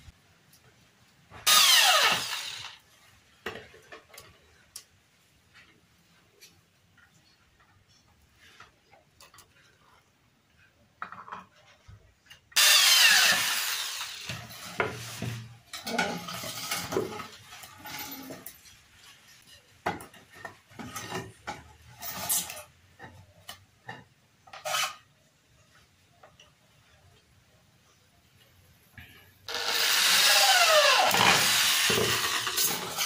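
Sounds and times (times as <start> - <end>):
electric drill drilling into wood: 1.4 - 2.8, 12.6 - 14.6, 29.5 - 33.0.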